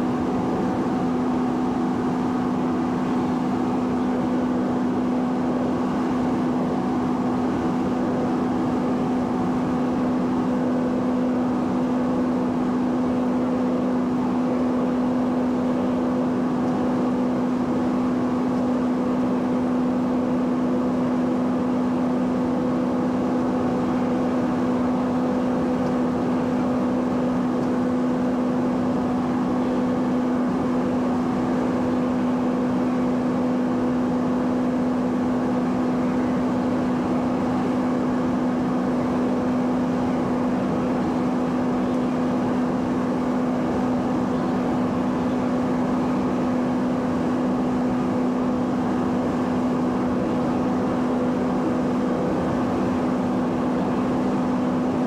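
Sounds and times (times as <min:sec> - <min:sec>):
turboprop engine drone: 0:00.0 - 0:55.0.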